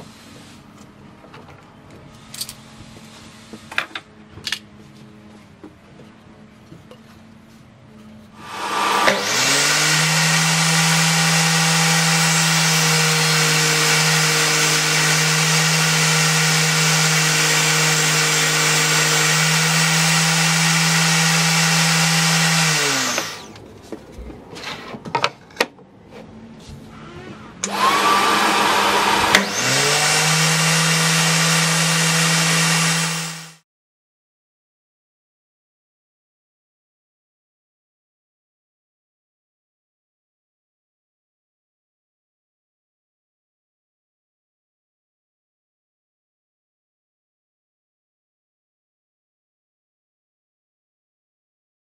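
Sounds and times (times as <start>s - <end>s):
table saw motor running: 8.4s - 23.6s, 27.2s - 33.6s.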